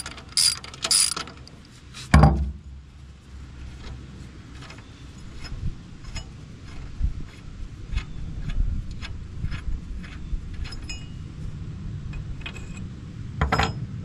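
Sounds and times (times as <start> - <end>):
hand tools clicking on steel: 0.0 - 1.3
steady low rumble: 1.6 - 14.0.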